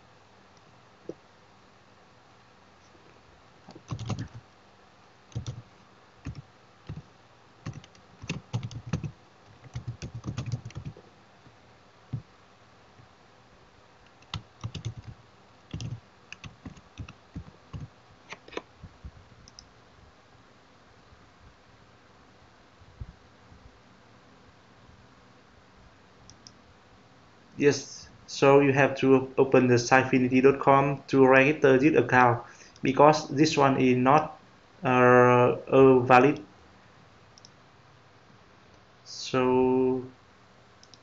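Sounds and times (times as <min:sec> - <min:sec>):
computer keyboard typing: 0:03.7 - 0:04.4, 0:05.3 - 0:11.0, 0:14.1 - 0:18.6.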